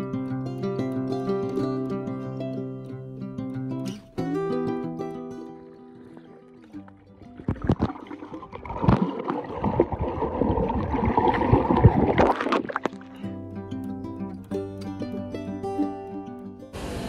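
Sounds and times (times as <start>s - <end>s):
guitar background music: 0.0s - 9.3s, 11.1s - 17.0s
underwater rushing and bubbling: 5.6s - 13.2s
underwater clicks and knocks: 6.8s - 13.2s.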